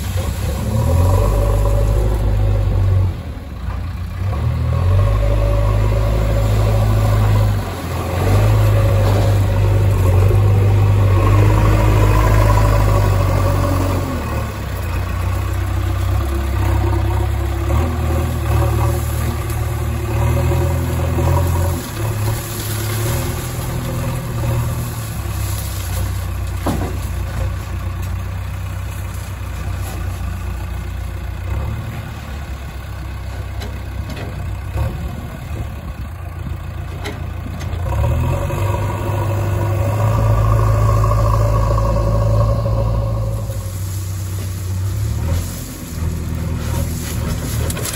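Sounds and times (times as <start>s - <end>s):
backhoe diesel engine: 0.0s - 47.9s
tractor diesel engine: 0.0s - 47.9s
stones pouring into trailer: 18.6s - 27.8s, 43.5s - 47.9s.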